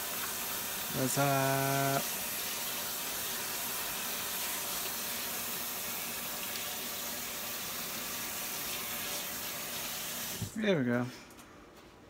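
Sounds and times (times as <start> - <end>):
tap running into sink: 9.2 - 10.6.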